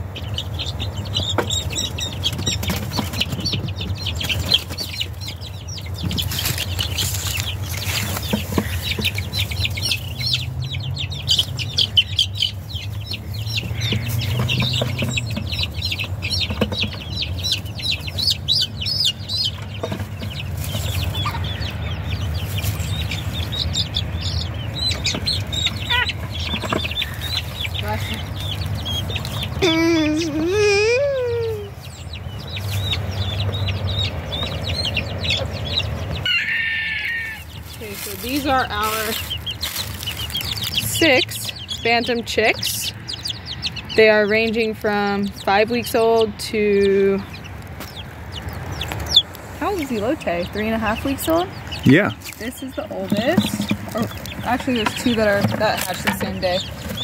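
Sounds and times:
chicks peeping: 0.0s - 57.0s
scattered knocks: 13.6s - 17.2s, 51.9s - 57.0s.

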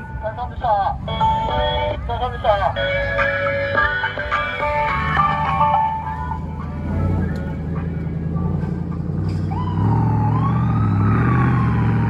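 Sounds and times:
engine rumbling driving past: 0.0s - 12.0s
siren wail: 9.4s - 12.0s.

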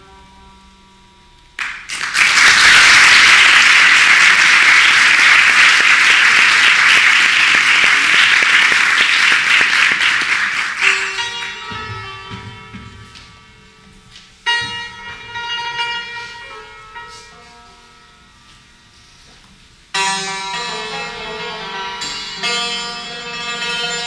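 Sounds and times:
santur notes ringing: 0.0s - 1.6s, 2.8s - 19.2s, 19.9s - 24.0s
audience applause: 1.6s - 11.6s.

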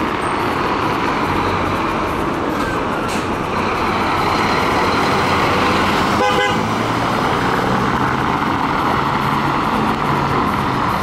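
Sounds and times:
road noise on cobbles: 0.0s - 11.0s
vehicle horn toot: 6.2s - 6.7s.

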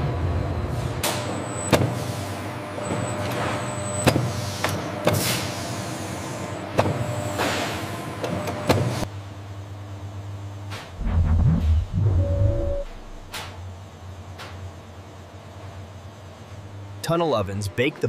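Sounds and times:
hissing whooshes: 11.0s - 13.3s
machinery humming: 11.0s - 13.7s.

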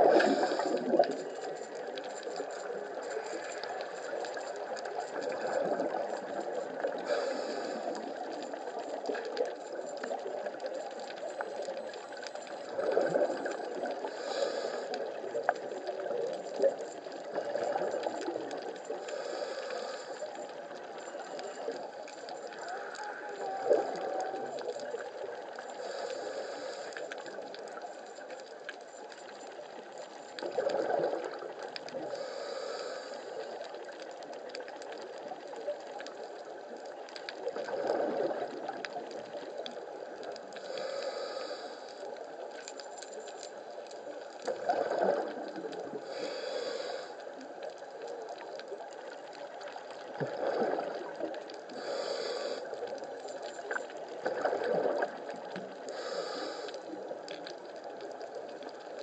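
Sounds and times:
exhaled bubbles underwater: 0.0s - 26.1s, 30.3s - 32.3s, 33.4s - 41.6s, 43.9s - 59.0s
steady underwater hiss: 0.0s - 59.0s
regulator hissing inhale: 0.1s - 1.0s, 6.9s - 8.4s, 14.0s - 15.2s, 18.9s - 20.6s, 25.8s - 27.4s, 32.0s - 33.6s, 40.6s - 42.2s, 46.0s - 47.4s, 51.7s - 53.0s, 55.9s - 57.0s.

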